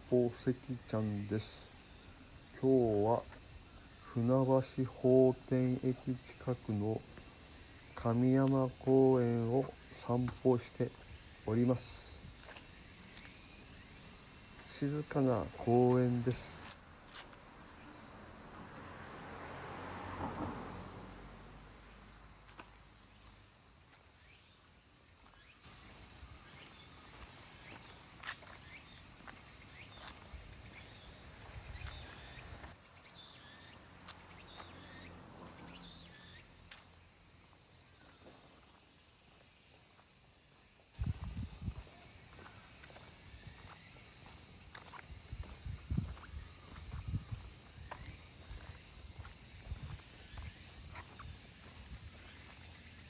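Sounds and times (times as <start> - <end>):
high-pitched insect chorus: 0.0 - 53.0
light walking footsteps: 5.4 - 17.8, 22.4 - 24.1, 25.1 - 33.3, 34.0 - 35.0, 36.6 - 53.0.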